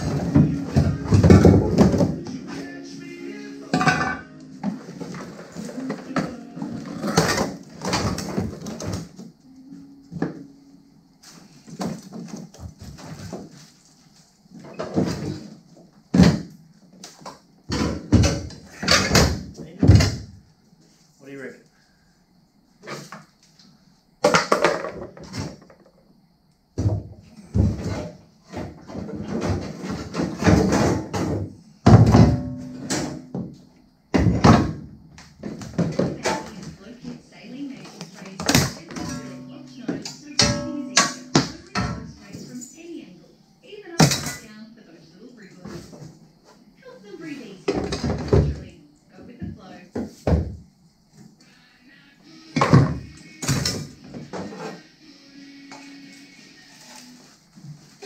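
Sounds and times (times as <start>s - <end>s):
metal clanking and knocking: 3.7s - 5.3s, 38.4s - 42.6s
sharp ringing metal clang: 40.4s - 41.8s.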